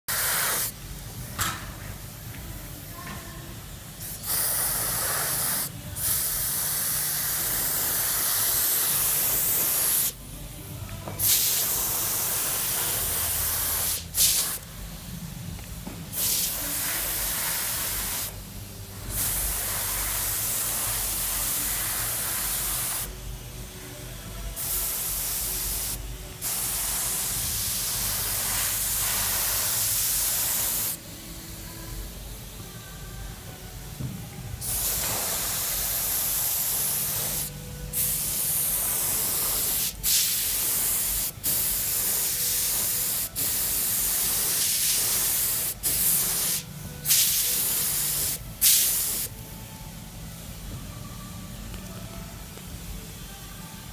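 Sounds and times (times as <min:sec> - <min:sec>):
paint spray gun hissing: 0:00.1 - 0:00.8, 0:04.0 - 0:10.2, 0:11.2 - 0:14.6, 0:24.6 - 0:31.0, 0:34.6 - 0:49.3.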